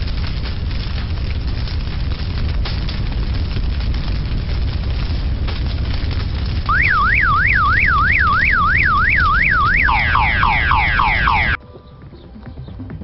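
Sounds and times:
low rumble of lava flow: 0.0 - 11.6
car alarm warbling and chirping: 6.7 - 11.6.

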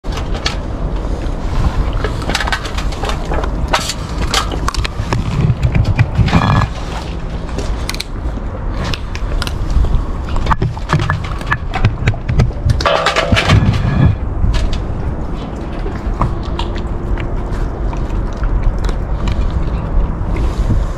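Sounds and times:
bowl scraping across concrete: 12.8 - 14.3.

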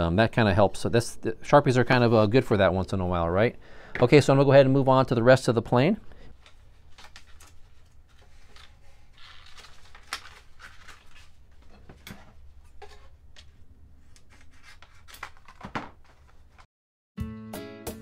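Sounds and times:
plastic film crinkling: 6.3 - 11.8.

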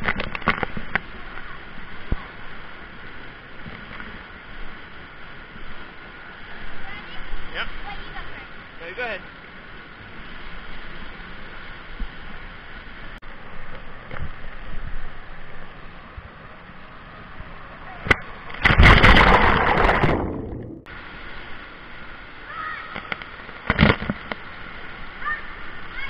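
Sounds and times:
running water: 0.0 - 26.0
loud water splash: 18.2 - 21.0.

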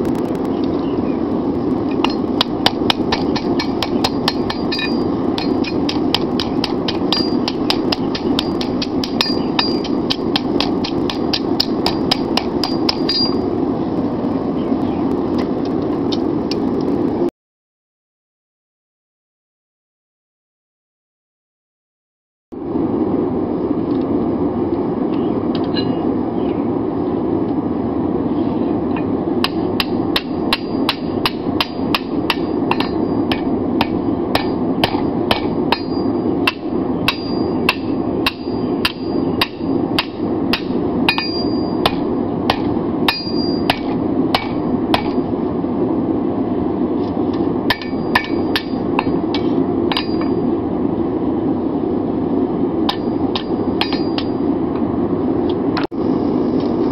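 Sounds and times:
steady rushing noise: 0.0 - 17.3, 22.5 - 56.9
hammer striking steel on anvil: 1.9 - 13.4, 29.4 - 45.3, 47.7 - 50.5, 52.9 - 54.4.

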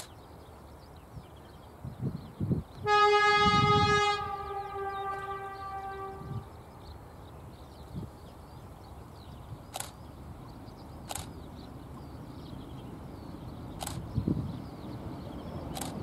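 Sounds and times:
distant train rumble: 0.0 - 16.0
wind thumps on microphone: 1.9 - 6.5, 13.8 - 14.8
sharp clicks: 9.7 - 10.0, 11.0 - 11.4, 13.8 - 14.1, 15.7 - 16.0.

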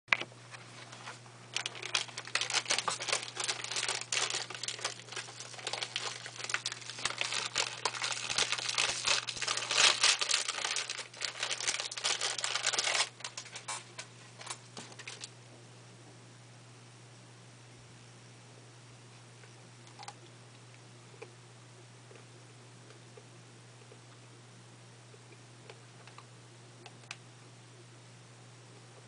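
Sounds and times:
paper wrapper crinkling: 0.7 - 15.3.

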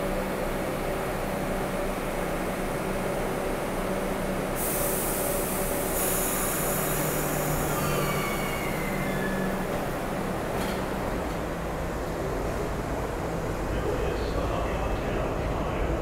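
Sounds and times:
subway train humming: 0.0 - 16.0
air hiss: 4.6 - 9.5
high squealing tones: 7.7 - 9.6.

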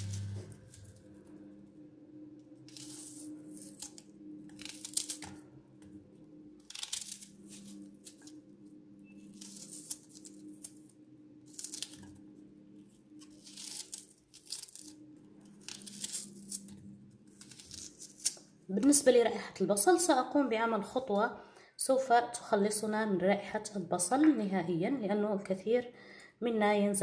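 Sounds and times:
knife slicing onion: 0.0 - 0.9.

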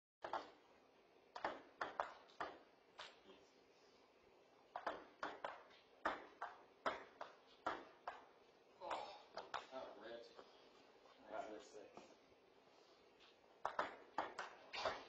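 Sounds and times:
table tennis ball clicking: 13.6 - 15.0.

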